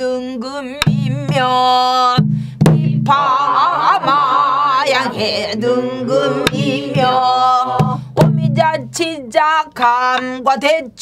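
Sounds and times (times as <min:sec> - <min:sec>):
woman singing with vibrato: 0:00.0 - 0:11.0
barrel drum: 0:00.8 - 0:03.4, 0:06.4 - 0:09.1.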